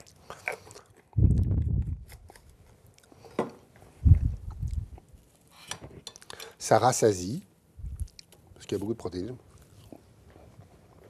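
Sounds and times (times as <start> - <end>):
low muffled rumbling: 1.2 - 2.1, 4.0 - 5.0.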